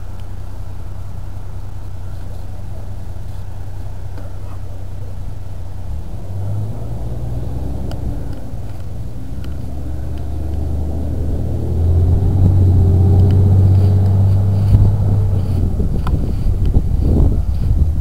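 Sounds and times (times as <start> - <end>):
vehicle engine rumble: 0.0 - 18.0.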